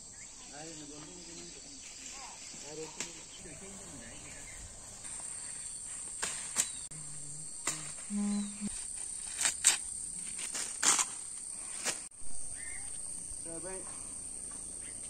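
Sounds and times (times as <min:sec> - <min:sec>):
insects buzzing: 0:00.0 - 0:15.0
leaves rustling and snapping: 0:05.1 - 0:06.9, 0:08.7 - 0:12.1
brief low hum: 0:07.1 - 0:08.8.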